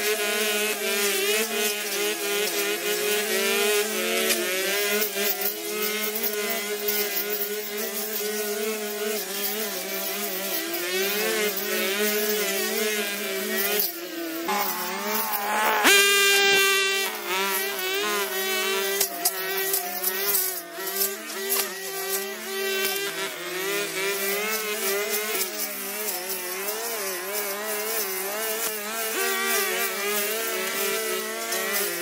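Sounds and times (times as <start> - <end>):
string trimmers cutting grass: 0.0 - 32.0
trimmer engine revving sharply: 14.5 - 19.2.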